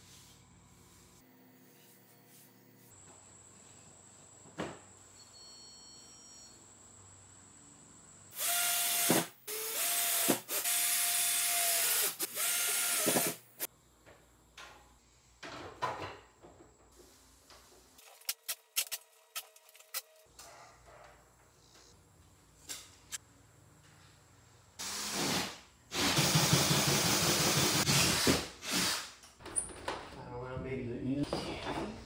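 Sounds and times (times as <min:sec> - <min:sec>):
cordless drill running: 0:08.3 - 0:13.4.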